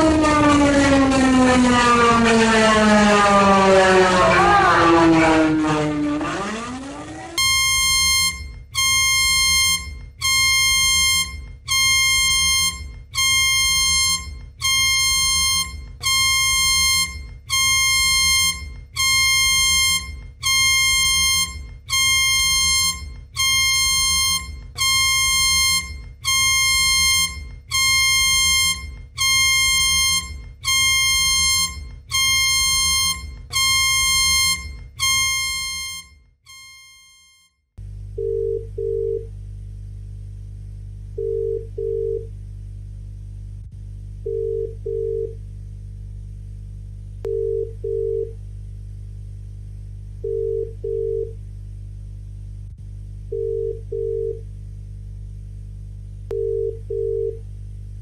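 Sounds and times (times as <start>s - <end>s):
low rumble: 0.0s - 8.8s, 37.8s - 56.4s
buzzy electronic alarm beeps: 0.0s - 37.6s
lower alarm tone: 0.0s - 37.6s, 38.2s - 39.3s, 47.2s - 48.3s.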